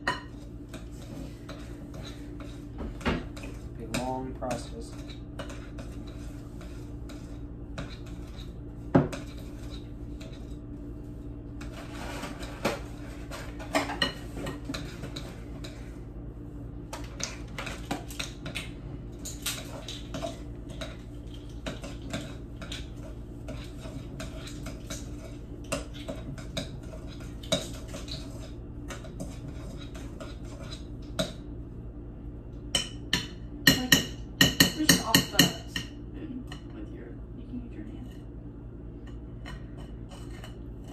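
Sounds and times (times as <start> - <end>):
spoon scraping glass bowl: 39.5 - 40.9.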